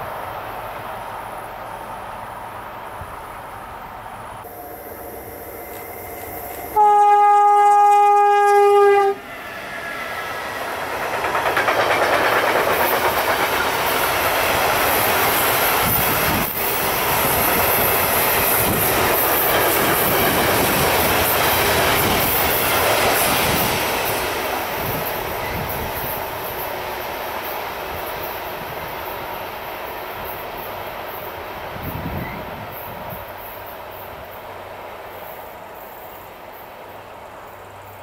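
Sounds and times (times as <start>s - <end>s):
train wheels rolling on rails: 0.0s - 6.8s, 8.5s - 38.0s
train horn: 6.6s - 9.3s.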